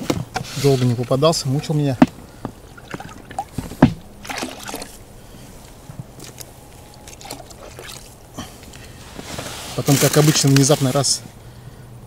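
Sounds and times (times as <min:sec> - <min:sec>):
water sloshing: 0:00.0 - 0:09.2.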